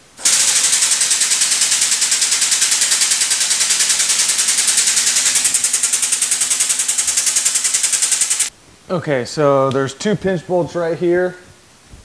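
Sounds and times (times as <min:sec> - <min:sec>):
motorcycle lift pump pulsing: 0:00.0 - 0:08.5.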